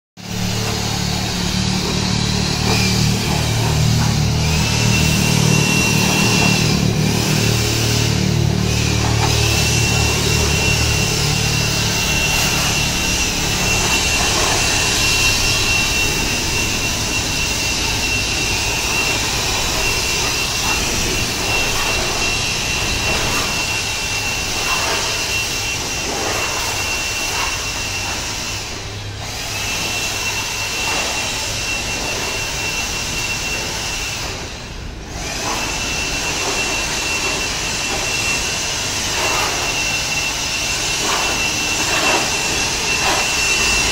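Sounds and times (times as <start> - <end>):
leaf blower air rush and whine: 0.2 - 43.9.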